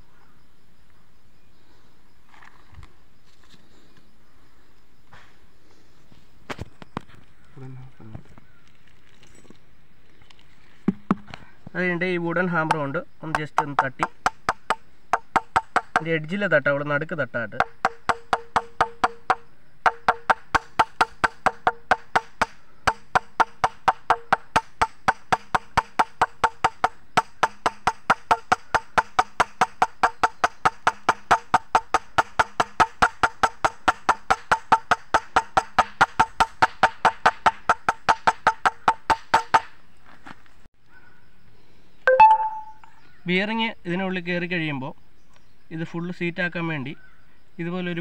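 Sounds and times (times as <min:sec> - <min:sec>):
mallet tapping metal bearing: 0:12.7 - 0:16.1, 0:17.6 - 0:39.6.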